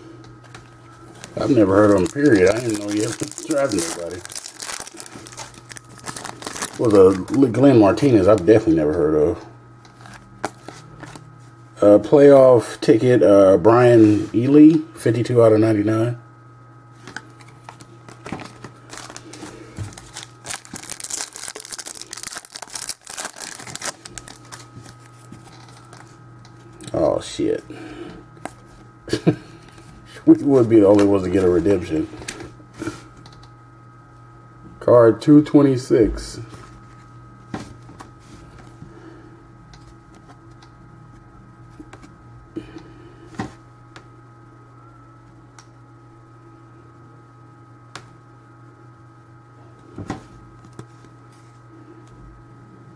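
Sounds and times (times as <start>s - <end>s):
steady low hum: 0.0s - 52.9s
trading cards handled: 0.4s - 7.4s, 9.9s - 11.3s, 17.0s - 26.6s
plastic wrapper crinkling and tearing: 1.3s - 7.5s, 17.4s - 26.1s.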